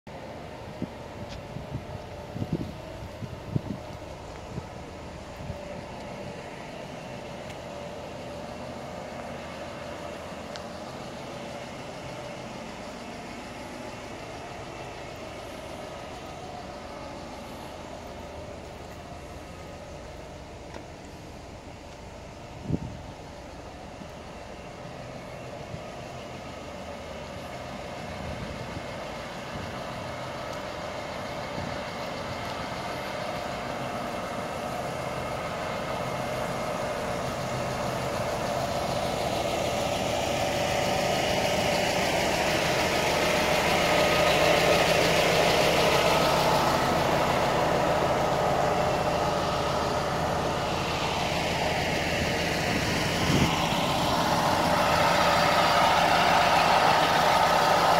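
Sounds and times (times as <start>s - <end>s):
bus engine idling: 0.0s - 57.9s.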